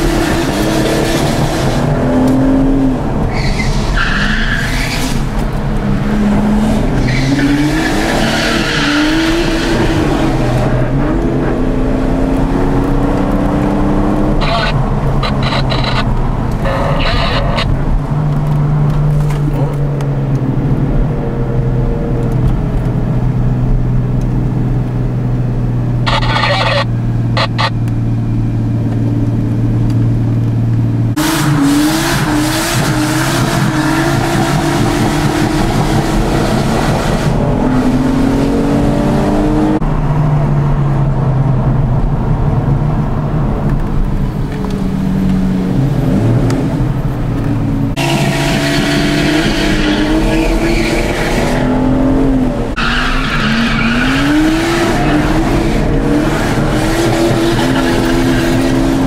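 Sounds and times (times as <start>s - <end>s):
car engine revving: 0.0s - 59.0s
tyre squeal: 3.3s - 5.3s, 52.8s - 55.4s.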